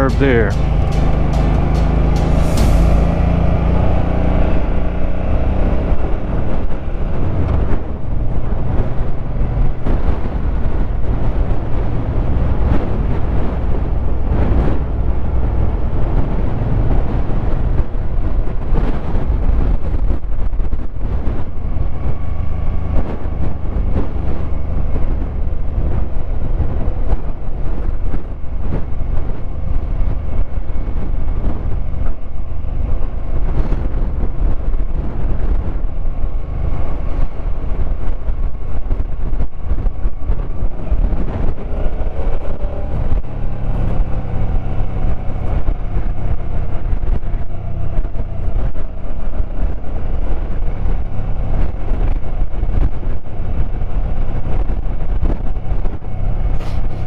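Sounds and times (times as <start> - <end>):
motorcycle engine running: 0.0 - 4.9
wind noise on microphone: 0.0 - 57.0.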